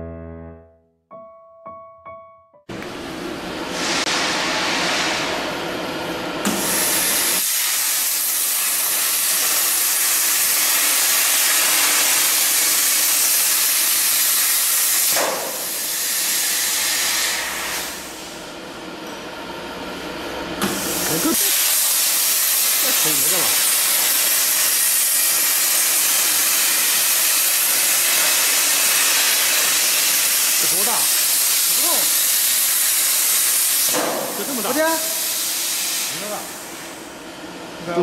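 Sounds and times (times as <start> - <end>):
cutting torch hissing: 6.4 - 18.3, 20.6 - 37.1.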